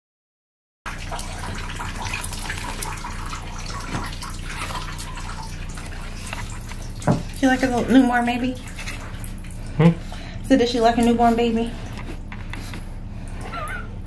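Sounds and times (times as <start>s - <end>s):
water dripping: 0.9s - 9.8s
water running into bathtub: 0.9s - 14.0s.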